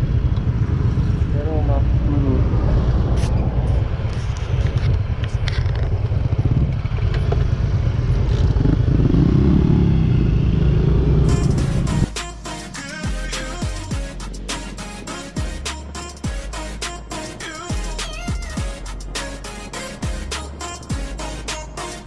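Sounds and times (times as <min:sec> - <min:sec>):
wind rumble on microphone: 0:00.0 - 0:10.0
scooter engine running: 0:04.5 - 0:12.0
music: 0:11.3 - 0:22.0.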